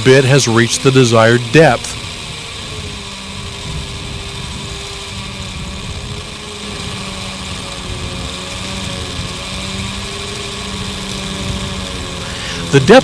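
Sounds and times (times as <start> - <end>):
hammer drill boring into masonry: 0.0 - 13.0.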